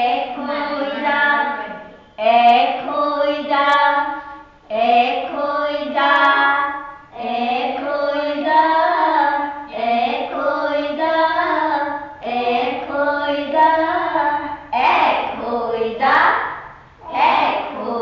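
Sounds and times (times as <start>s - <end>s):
child chanting: 0.0s - 18.0s.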